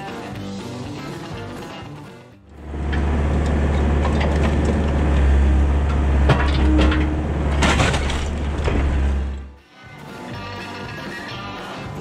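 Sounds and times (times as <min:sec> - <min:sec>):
diesel engine running under load: 0:02.5 - 0:09.6
wood and metal debris crashing: 0:03.6 - 0:09.6.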